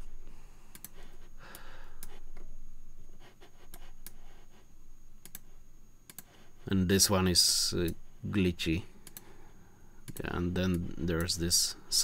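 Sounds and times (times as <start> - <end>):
computer mouse clicks: 0.7 - 2.5, 3.6 - 4.2, 5.2 - 5.5, 6.1 - 6.4, 9.0 - 9.3, 10.0 - 11.4.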